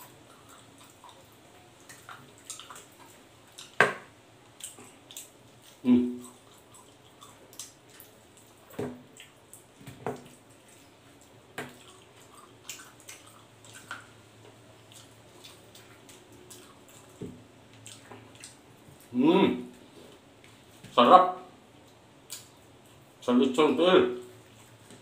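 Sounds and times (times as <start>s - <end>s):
chewing and lip-smacking: 0.0s - 3.8s, 4.4s - 19.2s, 21.8s - 23.1s
small eating clicks: 0.0s - 3.8s, 4.4s - 19.2s.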